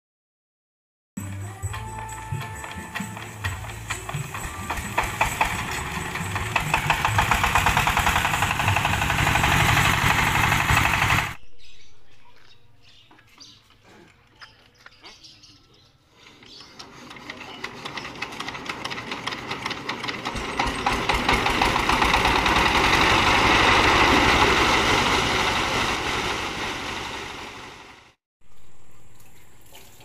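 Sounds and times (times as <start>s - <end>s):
diesel engine being hand-cranked: 1.3s - 11.4s, 16.4s - 27.1s
diesel engine thudding: 2.3s - 11.4s, 17.7s - 28.1s.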